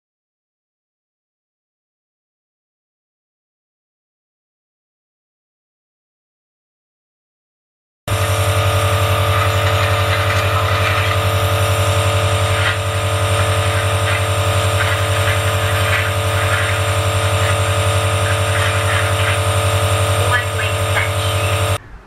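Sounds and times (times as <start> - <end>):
air compressor humming: 8.1 - 21.8.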